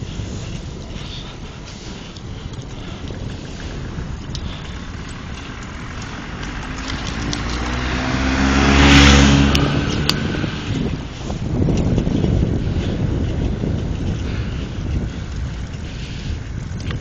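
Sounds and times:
car driving past: 5.6 - 11.0.

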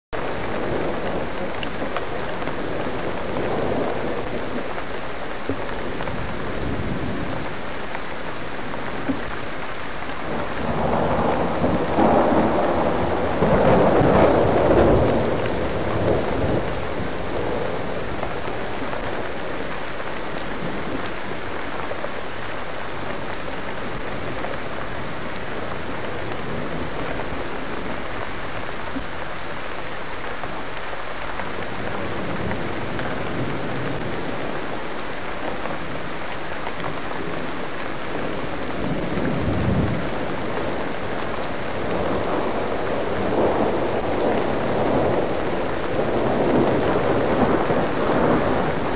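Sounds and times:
heavy rain: 0.0 - 48.9
thunder rolling: 10.3 - 19.4, 38.3 - 48.9.

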